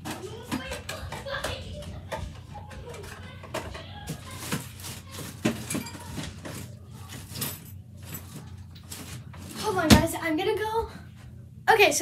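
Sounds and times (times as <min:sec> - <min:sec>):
small objects clattering in drawer: 0:00.0 - 0:09.6.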